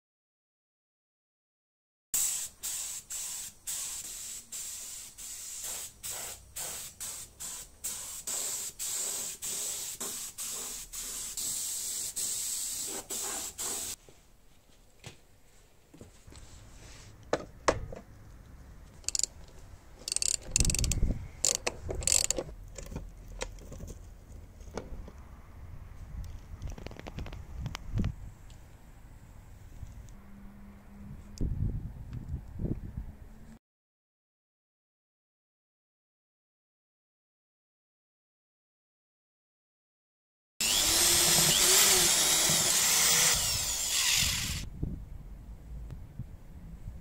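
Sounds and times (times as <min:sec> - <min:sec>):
spray gun hissing: 0:02.2 - 0:14.0.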